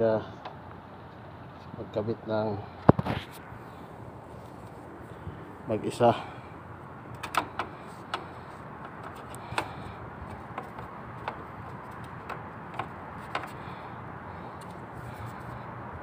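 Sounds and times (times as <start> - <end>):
steady background noise: 0.0 - 16.0
light clicks and taps on metal: 7.1 - 13.9.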